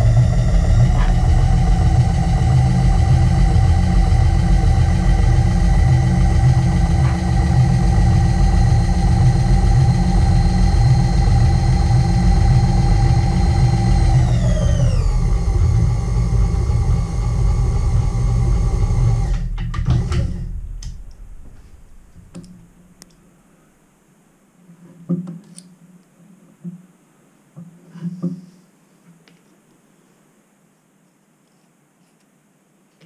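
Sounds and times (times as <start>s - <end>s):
milling machine motor whine: 0.0s - 22.8s.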